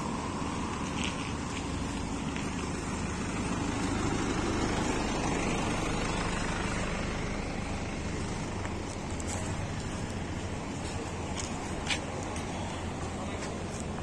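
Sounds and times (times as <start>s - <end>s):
truck engine droning: 0.0s - 14.0s.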